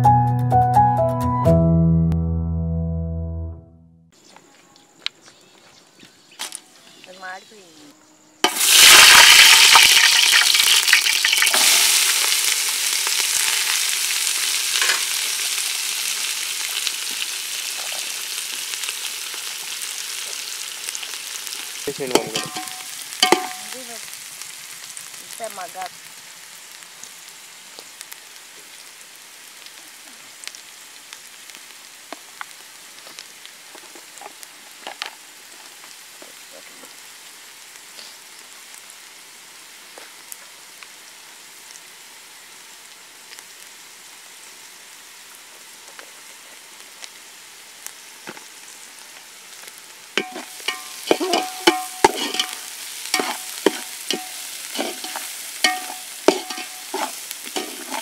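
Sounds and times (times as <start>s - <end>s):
onions sizzling in hot oil: 8.4s - 58.0s
metal ladle scraping a pot: 50.2s - 52.6s, 53.2s - 58.0s.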